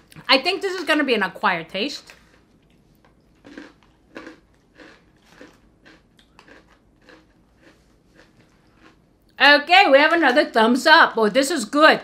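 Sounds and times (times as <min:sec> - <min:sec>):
chewing crunchy snack: 0:02.0 - 0:09.4.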